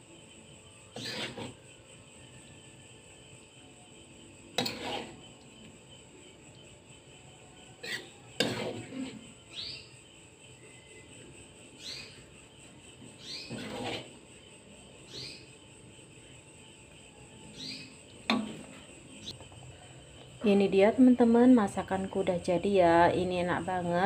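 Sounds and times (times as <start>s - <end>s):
metal ladle scraping a wok: 0.9s - 1.6s, 4.6s - 5.3s, 7.8s - 9.3s, 13.4s - 14.2s.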